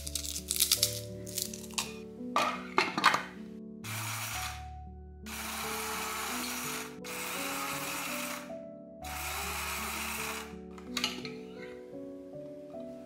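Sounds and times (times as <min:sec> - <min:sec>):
electric blade grinder running: 0:03.9 - 0:04.6, 0:05.3 - 0:08.5, 0:09.1 - 0:10.6.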